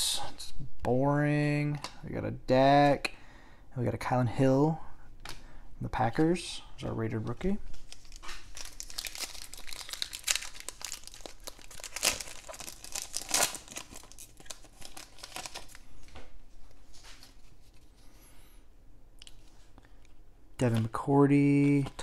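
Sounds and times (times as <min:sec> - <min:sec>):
foil wrapper tearing and crinkling: 0:07.9 - 0:15.8.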